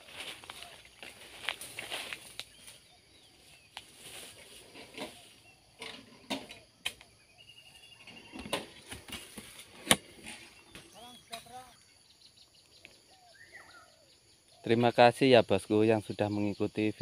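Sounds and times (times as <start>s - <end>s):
footsteps through dry grass: 0.0s - 5.5s
faint bird chirps: 0.1s - 17.0s.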